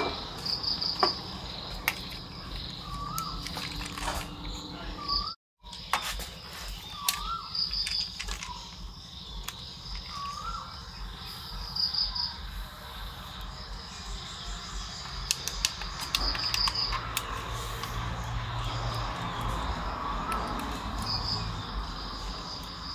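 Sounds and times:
crickets chirping: 0:00.0 - 0:22.9
sharp clicks: 0:15.0 - 0:18.0.

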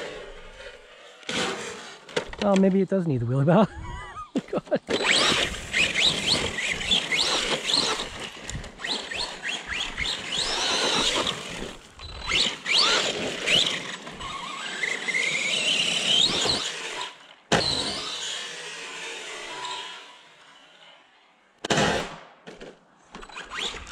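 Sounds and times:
electric motor whining: 0:04.4 - 0:20.6.

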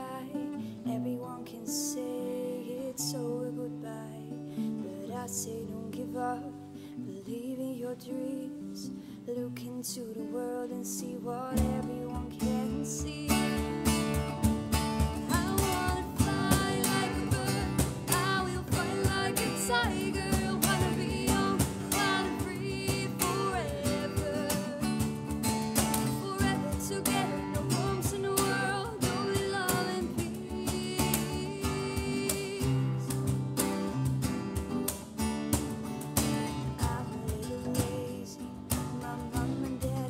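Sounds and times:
acoustic bass guitar: 0:00.0 - 0:40.0
strummed acoustic guitar: 0:00.0 - 0:40.0
cajon beat: 0:11.6 - 0:40.0.

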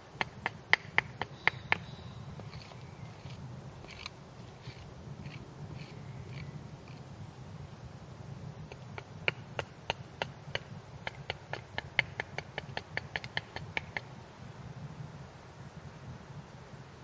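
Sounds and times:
hatchet chopping wood: 0:00.2 - 0:01.9, 0:08.7 - 0:14.1.

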